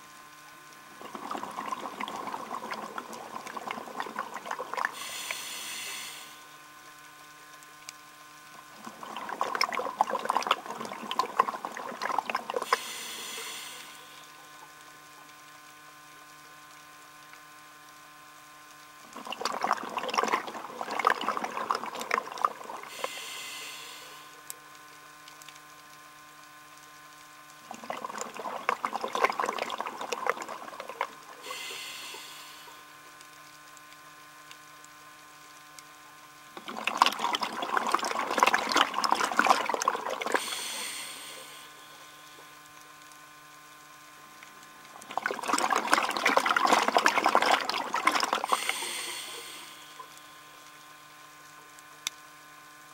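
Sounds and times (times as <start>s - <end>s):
faint steady hum: 0.0s - 52.9s
bubbling exhalation: 1.0s - 6.4s, 8.7s - 14.1s, 19.1s - 24.4s, 27.7s - 32.8s, 36.6s - 42.2s, 45.0s - 50.2s
regulator inhale hiss: 4.9s - 6.6s, 12.6s - 14.4s, 22.9s - 24.4s, 31.4s - 32.9s, 40.4s - 42.4s, 48.4s - 50.5s.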